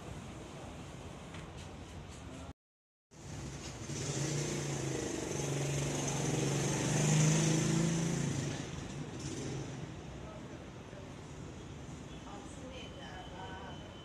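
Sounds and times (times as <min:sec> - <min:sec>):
motorcycle engine passing by: 0:03.2 - 0:10.0.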